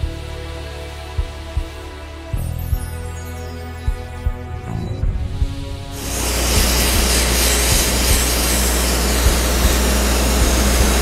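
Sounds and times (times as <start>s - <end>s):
blasting gun hissing: 5.9s - 11.0s.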